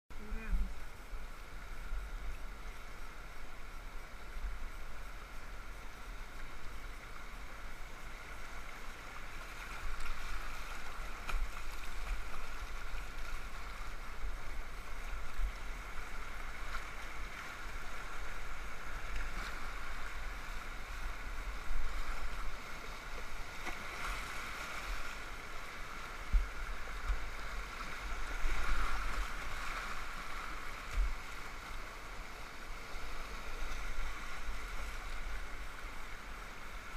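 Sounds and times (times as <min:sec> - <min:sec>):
rushing whitewater: 0:00.2 - 0:36.9.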